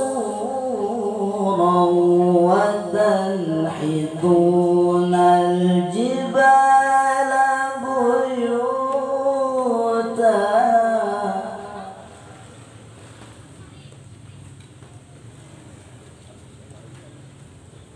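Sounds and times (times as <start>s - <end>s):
boy reciting melodically into microphone: 0.0s - 12.4s.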